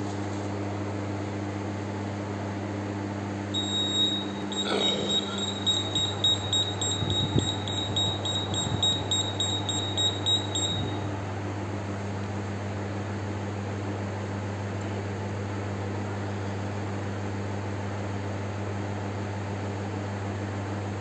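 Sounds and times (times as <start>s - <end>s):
low electrical hum: 0.0s - 13.9s
high-pitched pulsing tone: 3.6s - 11.0s.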